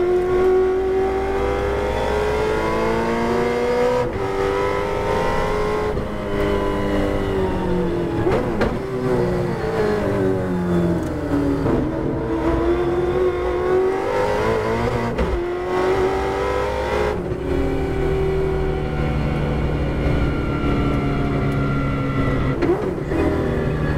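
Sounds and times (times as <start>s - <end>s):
race car engine revving: 0.0s - 23.8s.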